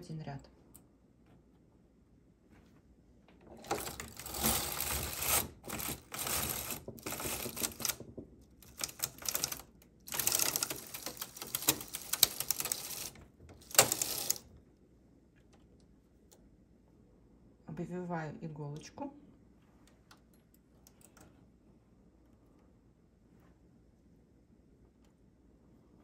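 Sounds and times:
knitting machine carriage clattering: 0:03.4 - 0:14.5.

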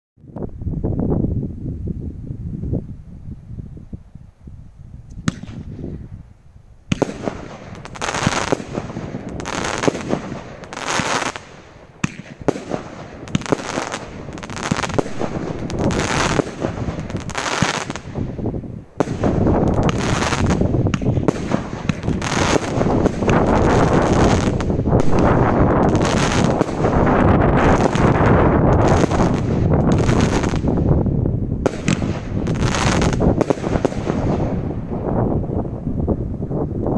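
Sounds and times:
firework cake firing bangs: 0:05.2 - 0:05.9, 0:06.9 - 0:18.3, 0:19.0 - 0:30.8, 0:31.6 - 0:34.7.

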